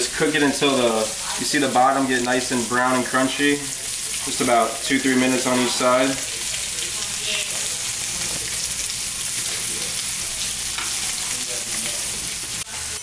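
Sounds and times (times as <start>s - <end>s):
fish frying in hot oil: 0.0s - 13.0s.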